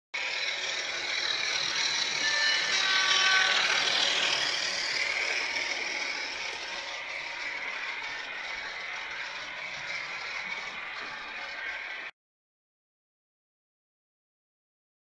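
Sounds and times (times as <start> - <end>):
model train running on track: 0.2 - 12.1.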